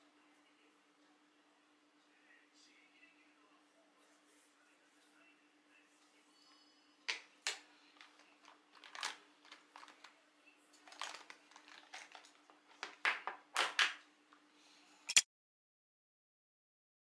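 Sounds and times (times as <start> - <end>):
sharp click: 15.1 - 15.3.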